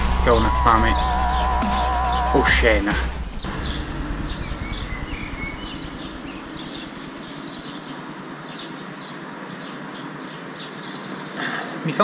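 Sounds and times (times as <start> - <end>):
birds chirping: 0.0 - 12.0
distant traffic noise: 3.2 - 11.8.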